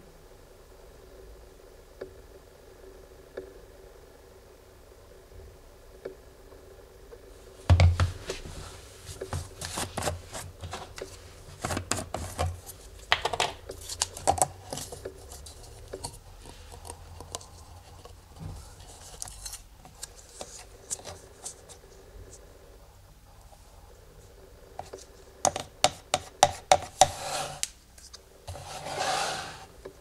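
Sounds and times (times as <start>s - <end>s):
plastic bottle thump: 7.7s - 8.1s.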